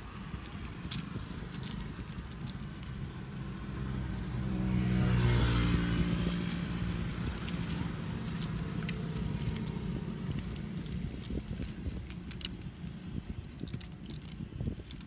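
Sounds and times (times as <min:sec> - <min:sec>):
vehicle engine passing: 0:00.8 - 0:12.4.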